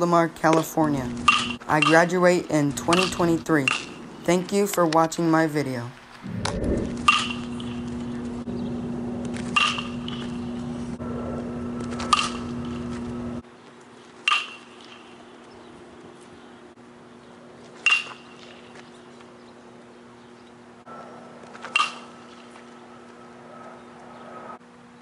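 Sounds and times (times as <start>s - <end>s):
steady low hum: 0.0s - 25.0s
metal bat hitting ball: 1.3s - 2.0s, 9.5s - 10.3s, 12.0s - 12.4s, 14.3s - 14.8s, 17.8s - 18.4s, 21.6s - 22.3s.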